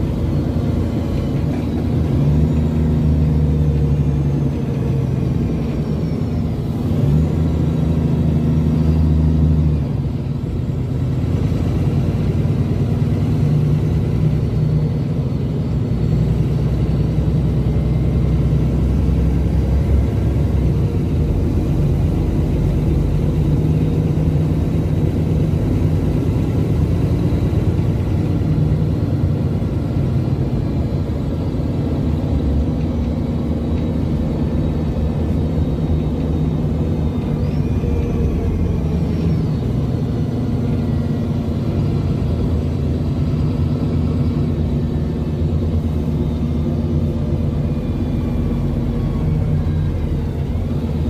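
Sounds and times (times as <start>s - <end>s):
bus diesel engine running: 0.0s - 51.0s
road and tyre rumble: 0.0s - 51.0s.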